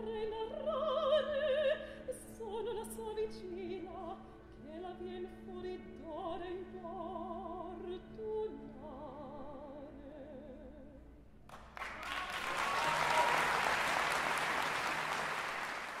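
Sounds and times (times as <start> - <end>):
audience applause: 11.5 - 16.0.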